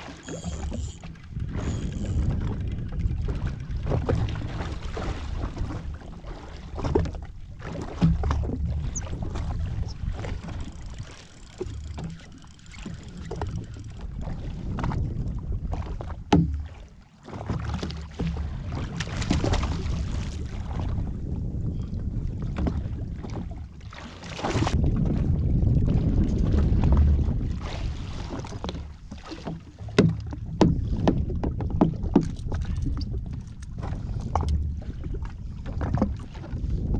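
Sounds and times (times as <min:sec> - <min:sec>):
water sloshing: 0:00.0 - 0:21.0, 0:26.0 - 0:36.7
wind buffeting microphone: 0:00.4 - 0:16.8, 0:18.1 - 0:36.9
short knocks: 0:29.8 - 0:32.3.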